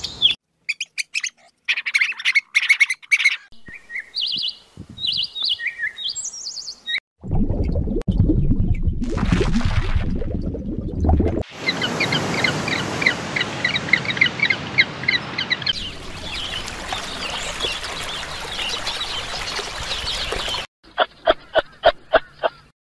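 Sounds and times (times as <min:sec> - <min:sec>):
small bird chirping: 0:00.0 - 0:07.0
water trickling over stones: 0:15.8 - 0:20.7.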